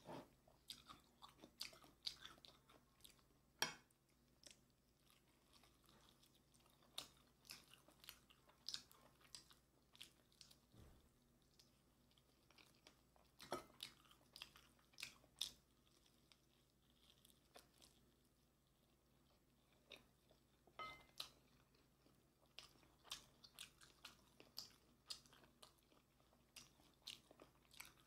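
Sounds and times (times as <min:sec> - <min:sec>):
person chewing crunchy chicken: 0:00.0 - 0:28.0.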